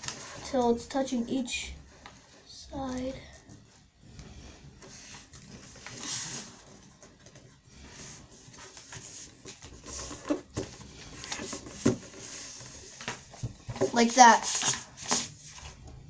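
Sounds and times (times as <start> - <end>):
paper rustling and crinkling: 0.0 - 1.2, 4.8 - 15.9.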